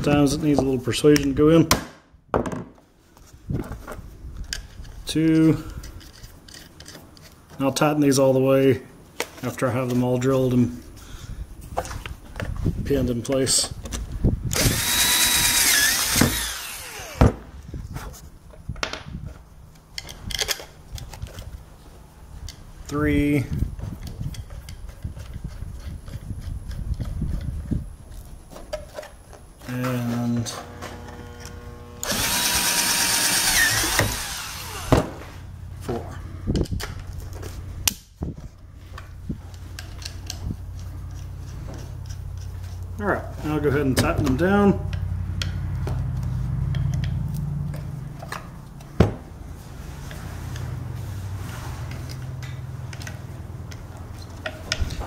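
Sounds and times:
cordless drill boring plastic: 14.5 - 17.3, 30.4 - 35.0
steady low hum: 20.7 - 55.0.

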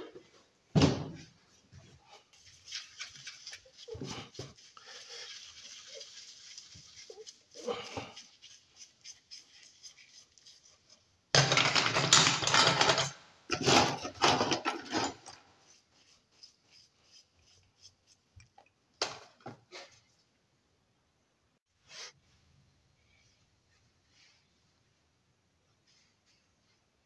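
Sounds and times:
stiff brush scrubbing: 2.0 - 11.2, 15.6 - 18.6
metal parts scraping and clinking: 11.4 - 15.4.

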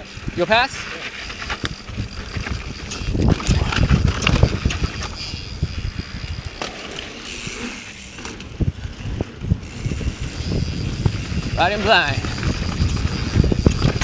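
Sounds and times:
bike thumping and rattling: 0.0 - 14.0
wind rumbling on microphone: 0.0 - 14.0.

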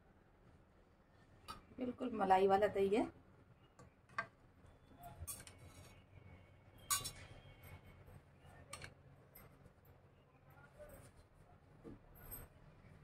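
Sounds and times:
light clinks of tableware: 6.8 - 7.4.

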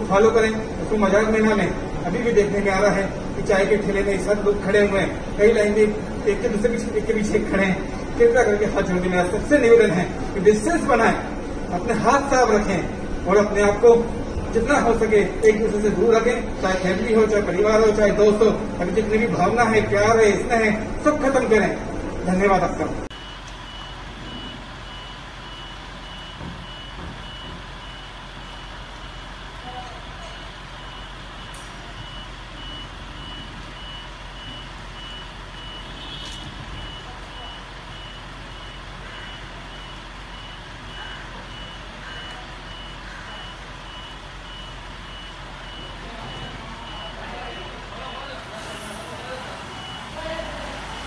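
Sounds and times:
background noise: 0.0 - 51.0
reversing alarm beeping: 23.1 - 51.0.

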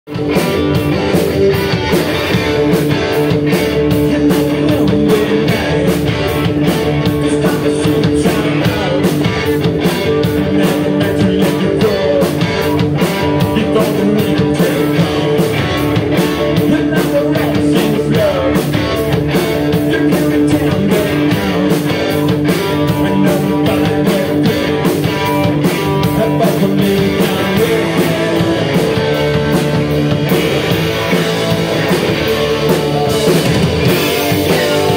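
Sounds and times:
electric bass: 0.0 - 34.9
drum kit beat: 0.1 - 34.9
electric guitars: 0.1 - 34.9
lead singer's vocal: 3.6 - 15.7, 16.4 - 19.0, 19.6 - 29.2, 33.9 - 34.9.

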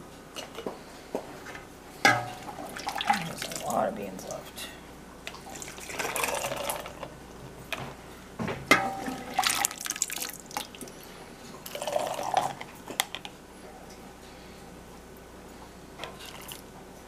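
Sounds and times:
beans and liquid pouring into jar: 5.5 - 7.0.

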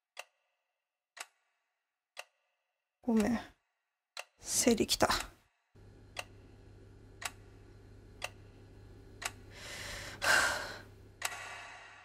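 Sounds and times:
clock ticking: 0.1 - 3.6, 4.2 - 11.6
low steady hum: 5.8 - 11.9
person breathing loudly: 9.5 - 12.0.

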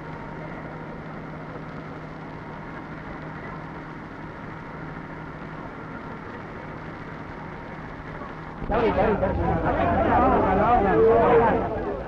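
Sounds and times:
street noise: 0.0 - 12.0.

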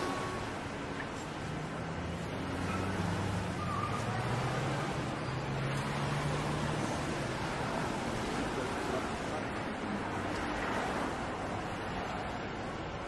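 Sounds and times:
passing vehicles: 0.0 - 13.0.

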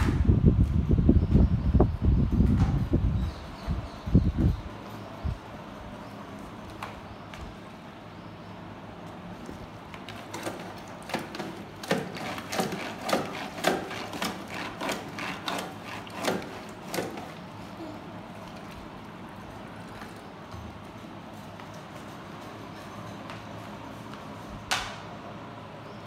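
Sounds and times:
mop scraping through bucket wringer: 10.0 - 17.4.

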